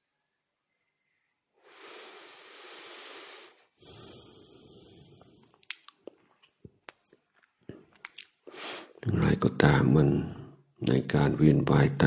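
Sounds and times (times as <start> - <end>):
person breathing heavily: 1.6 - 5.6
mouth clicks: 5.2 - 7.2.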